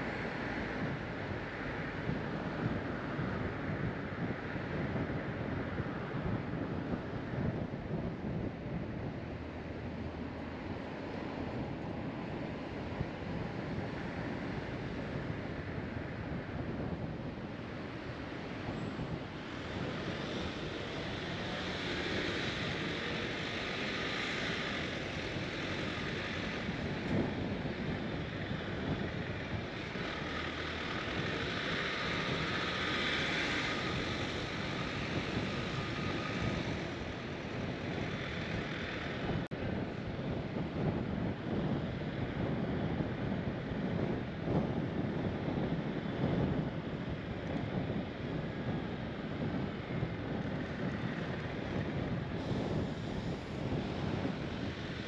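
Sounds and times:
tyre and wind hiss: 0.0s - 55.0s
car engine: 17.5s - 39.6s.

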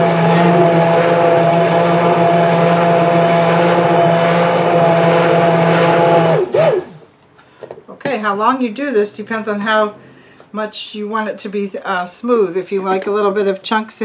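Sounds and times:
immersion blender motor humming: 0.0s - 7.0s.

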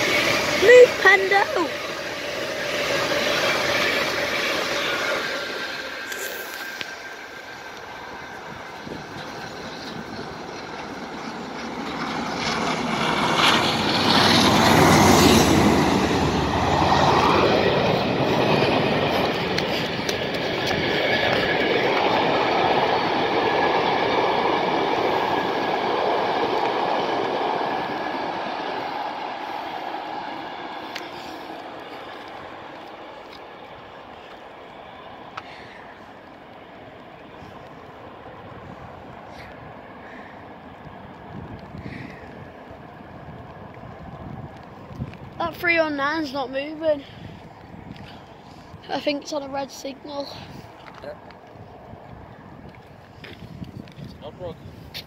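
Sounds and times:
trains passing: 0.0s - 55.0s.

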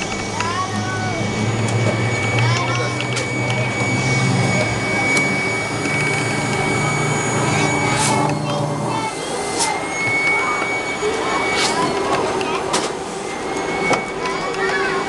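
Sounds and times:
low hum: 0.0s - 11.5s
high-pitched whine: 0.0s - 15.0s.

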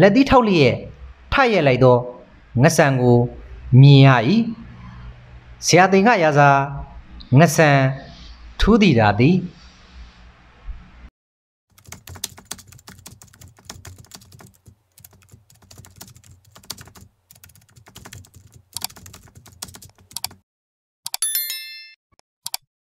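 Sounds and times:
computer keyboard typing: 11.7s - 20.4s, 21.1s - 21.3s
notification bell ding: 21.1s - 22.0s.

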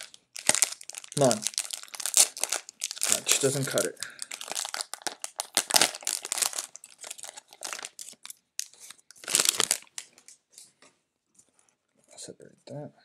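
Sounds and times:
cellophane wrapper crinkling: 0.0s - 10.4s.

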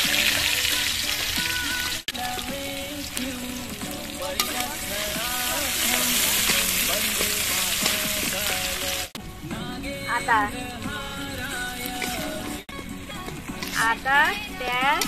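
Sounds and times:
onions sizzling in hot oil: 0.0s - 9.2s.

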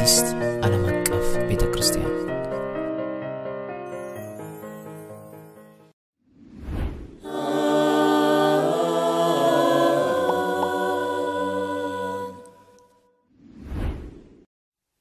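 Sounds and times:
whoosh: 6.3s - 7.3s, 13.3s - 14.5s
wordless choir-like chord: 7.2s - 13.2s.

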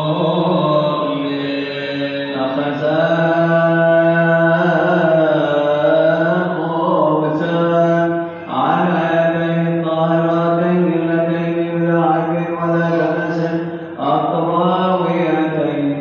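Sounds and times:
man chanting: 0.0s - 16.0s.

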